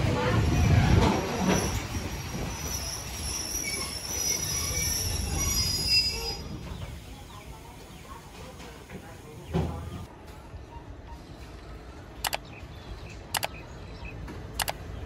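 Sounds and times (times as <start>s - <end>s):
train running gear rumble: 0.0s - 12.1s
train wheels squealing: 0.2s - 7.0s.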